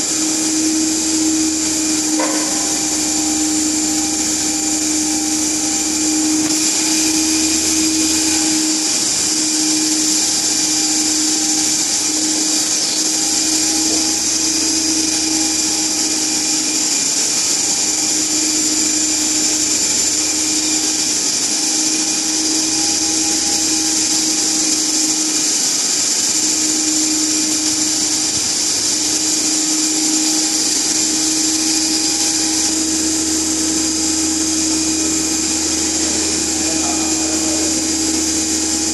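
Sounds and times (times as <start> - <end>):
high hiss: 0.0 - 38.9
motor generator humming: 0.0 - 38.9.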